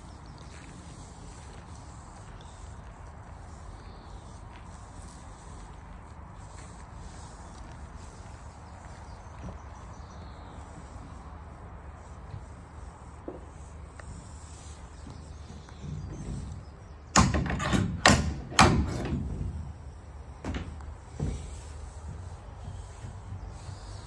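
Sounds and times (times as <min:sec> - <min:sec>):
low outdoor background: 0:00.0 - 0:24.0
metal partition knocking and clanking: 0:17.1 - 0:19.3.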